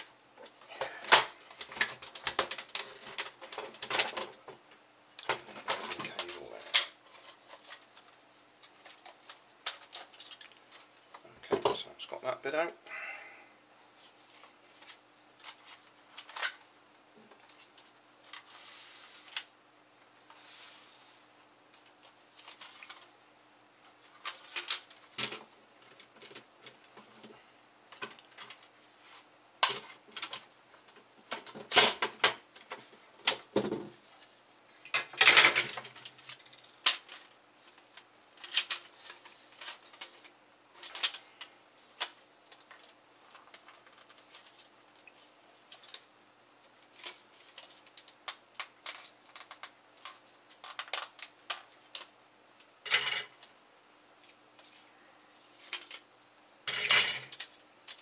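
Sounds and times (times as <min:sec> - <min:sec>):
parts clattering: 0:29.6 - 0:46.0, 0:52.8 - 0:53.5, 0:54.6 - 0:58.0.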